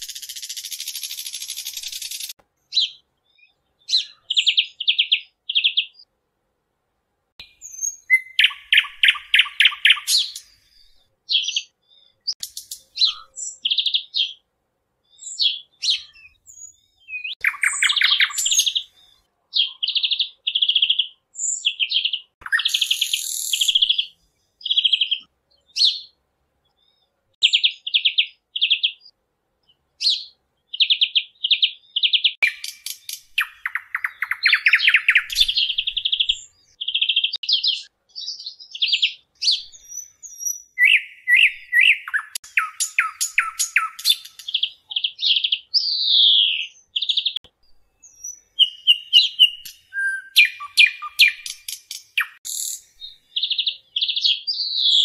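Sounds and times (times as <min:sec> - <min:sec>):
parrots chirping: 0:32.4 - 0:36.5, 0:40.8 - 0:45.4, 0:48.3 - 0:52.8.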